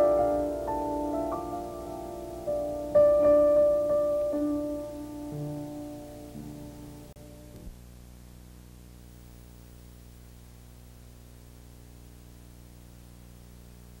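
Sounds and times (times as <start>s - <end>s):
closing music: 0.0s - 7.7s
low electrical hum: 0.0s - 14.0s.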